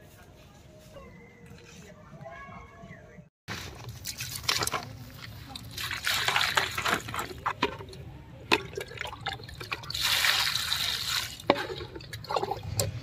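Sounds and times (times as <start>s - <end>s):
water splashing through colander: 3.9s - 13.0s.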